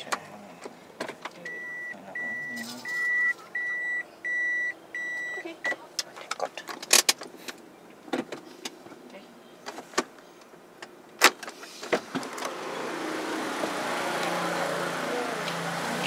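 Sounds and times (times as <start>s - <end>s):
parking sensor beeping: 1.4s - 5.8s.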